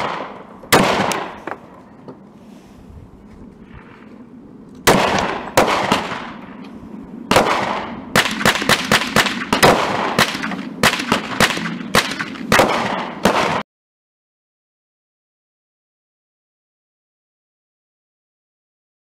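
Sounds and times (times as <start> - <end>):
pistol gunshots: 0.0 - 1.6, 4.8 - 6.4, 7.3 - 13.6.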